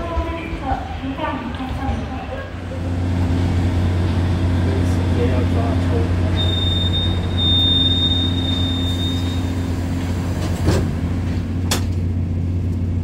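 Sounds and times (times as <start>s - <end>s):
train low hum: 0.0s - 13.0s
high warning tone: 6.3s - 9.7s.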